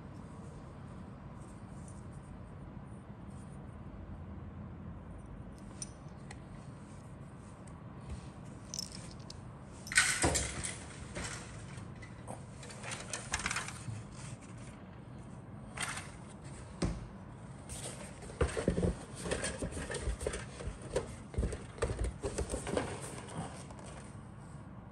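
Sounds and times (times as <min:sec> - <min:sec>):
plastic parts clattering: 0:08.7 - 0:09.3
plastic parts clicking and rattling: 0:08.7 - 0:11.6.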